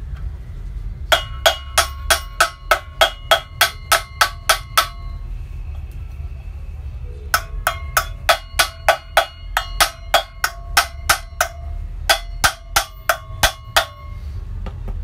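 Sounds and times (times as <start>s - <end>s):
hammer striking metal housing: 1.1s - 5.2s, 7.3s - 14.3s.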